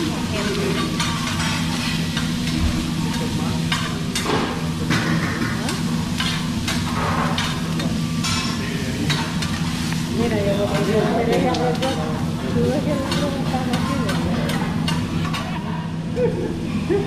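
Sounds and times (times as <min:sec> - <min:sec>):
vegetables sizzling on griddle: 0:00.0 - 0:17.0
metal spatulas scraping and clacking: 0:00.4 - 0:04.4, 0:05.6 - 0:09.6.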